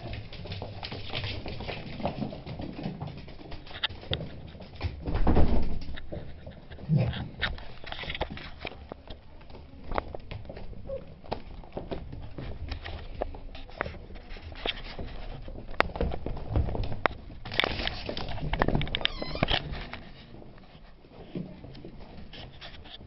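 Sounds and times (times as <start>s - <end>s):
puppies scuffling and clicking: 0.0s - 23.0s.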